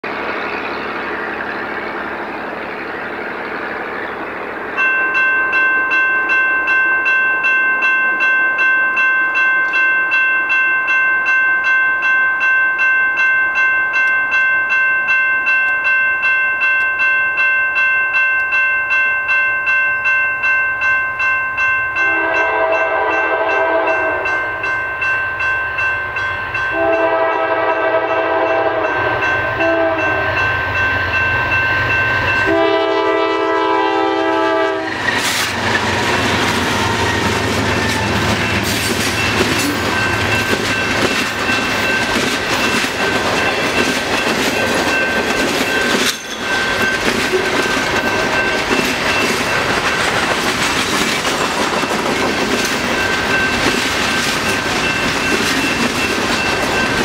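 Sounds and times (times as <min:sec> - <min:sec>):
railroad crossing bell ringing: 0:00.0 - 0:57.0
locomotive horn blasts: 0:22.0 - 0:24.4, 0:26.7 - 0:30.4, 0:32.4 - 0:35.0.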